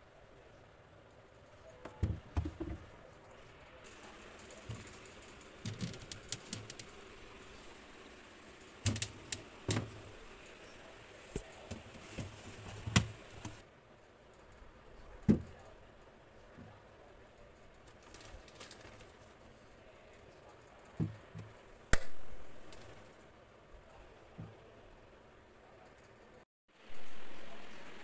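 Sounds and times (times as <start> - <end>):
fruit knocking on plastic shelves: 1.8 - 2.9, 8.8 - 10.1, 11.4 - 13.6, 15.2 - 15.7.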